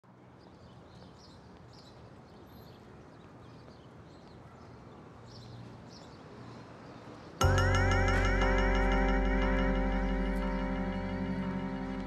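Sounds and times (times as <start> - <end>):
small birds chirping: 0.4 - 7.5.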